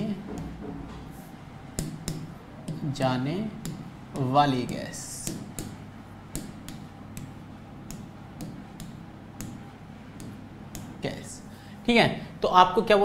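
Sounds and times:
marker tapping and scraping whiteboard: 0.1s - 3.0s, 3.6s - 11.1s.

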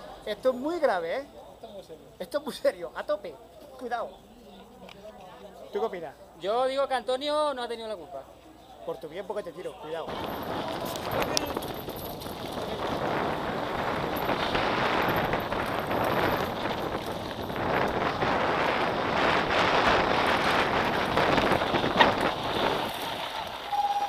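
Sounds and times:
bike tyres rolling on gravel: 10.1s - 24.0s
wind on microphone: 10.1s - 24.0s.

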